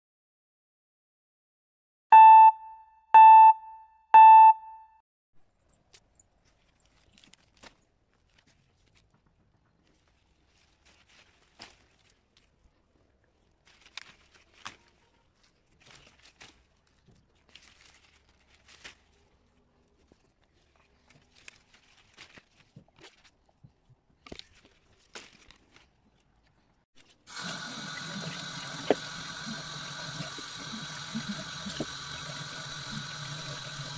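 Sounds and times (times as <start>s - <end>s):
leaves and branches rustling: 6.4s - 23.6s, 24.2s - 26.4s.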